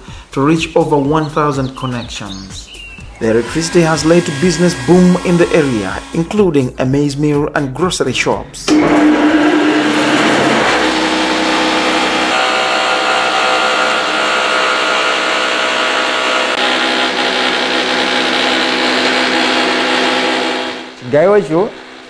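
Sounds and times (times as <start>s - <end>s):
maize mill whirring grind: 3.0s - 6.4s, 8.7s - 21.0s
motor hum: 3.0s - 6.4s, 8.7s - 22.0s.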